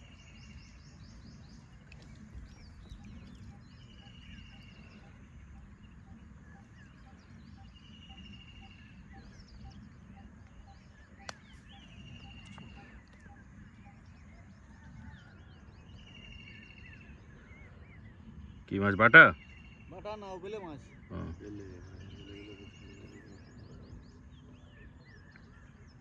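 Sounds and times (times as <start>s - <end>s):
low steady rumble: 0.0s - 18.8s
bird trill: 0.0s - 26.0s
birds chirping and calling: 0.0s - 26.0s.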